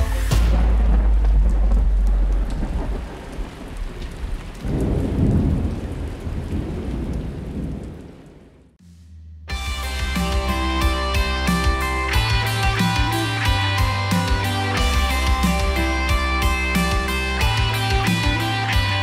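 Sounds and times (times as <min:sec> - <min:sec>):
rain hissing: 0:00.0 - 0:08.8
deep thunder rumble: 0:00.4 - 0:08.8.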